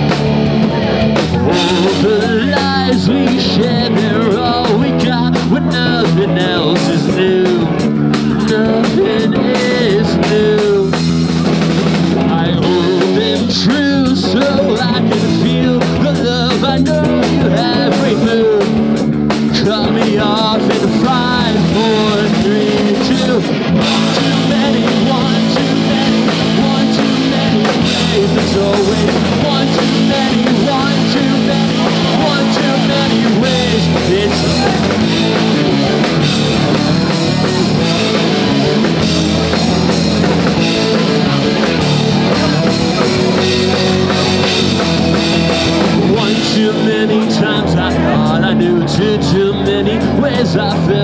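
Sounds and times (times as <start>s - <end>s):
drum kit: 0.0s - 51.0s
electric guitars: 0.0s - 51.0s.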